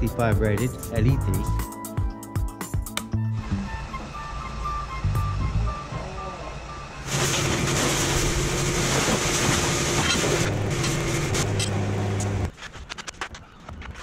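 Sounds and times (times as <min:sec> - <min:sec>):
pressure washer motor hum: 0:05.8 - 0:12.5.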